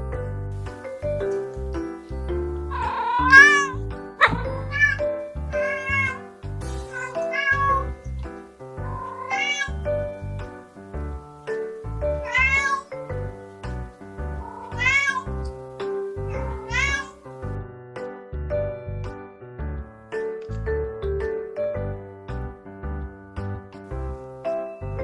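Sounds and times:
background music with beat: 0.0s - 7.0s
cat meowing: 2.7s - 8.2s, 8.8s - 10.3s, 12.0s - 13.0s, 14.2s - 15.5s, 16.2s - 17.2s.

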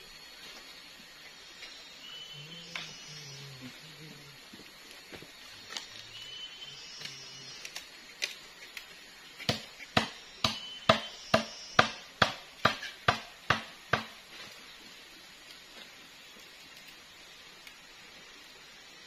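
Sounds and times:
tool knocking on wood: 9.5s - 14.1s.

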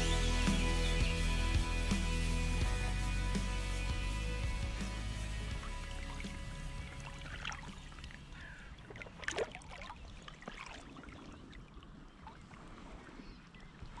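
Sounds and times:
soft lapping water: 4.4s - 14.0s
water sloshing and dripping: 5.3s - 14.0s
fish splashing: 5.5s - 13.2s.

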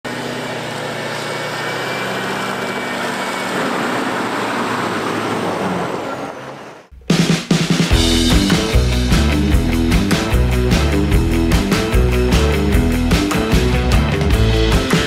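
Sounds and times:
road noise: 0.0s - 6.9s
vehicle engine driving: 0.0s - 7.0s, 8.0s - 15.0s.

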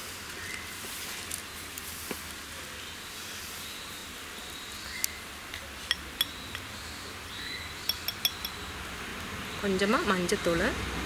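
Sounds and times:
background hiss: 0.0s - 10.3s
faint high chirps: 5.9s - 8.8s
glass jar clinking: 7.9s - 8.6s.

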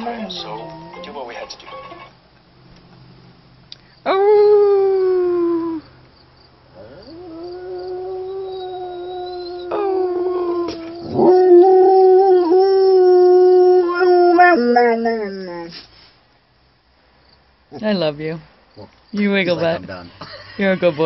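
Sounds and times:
dog howling: 4.1s - 5.8s, 6.8s - 15.8s.

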